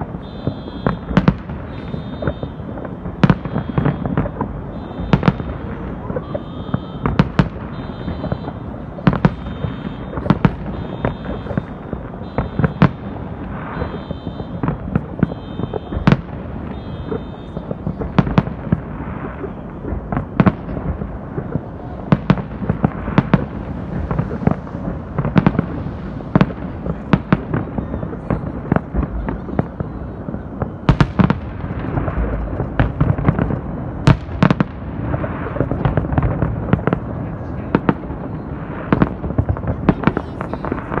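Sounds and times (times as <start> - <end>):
fireworks bangs: 0.0 - 41.0
low rumble: 20.7 - 29.4.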